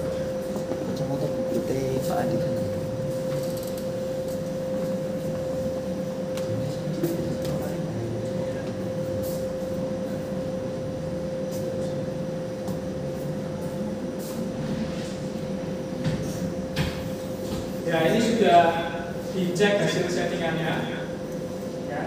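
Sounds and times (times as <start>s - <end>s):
machine hum: 0.0s - 22.0s.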